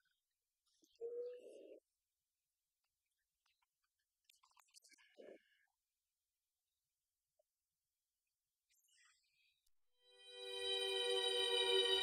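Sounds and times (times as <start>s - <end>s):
faint high-pitched sound: 10.1s - 12.0s.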